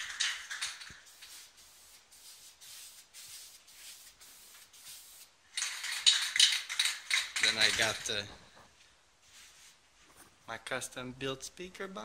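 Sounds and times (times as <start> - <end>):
soft rustling and shuffling: 7.4 - 10.6.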